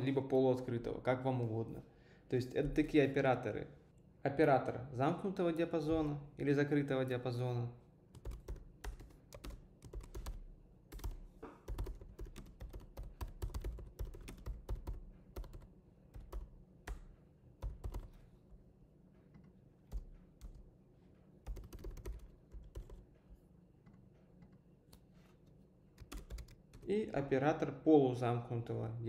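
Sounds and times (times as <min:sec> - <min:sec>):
keyboard typing clicks: 0:08.2 - 0:18.2, 0:21.4 - 0:23.0, 0:26.0 - 0:26.9.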